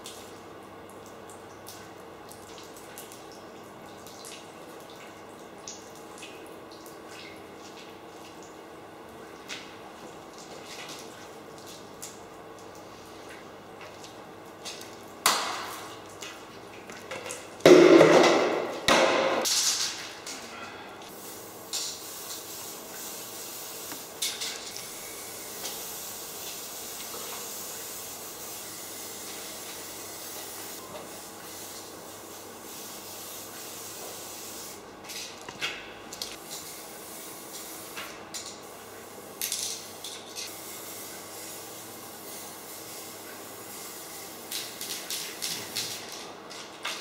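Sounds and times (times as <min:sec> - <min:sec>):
spray-like hiss: 0:21.1 - 0:24.2, 0:25.4 - 0:31.8, 0:32.7 - 0:34.8, 0:40.5 - 0:44.7.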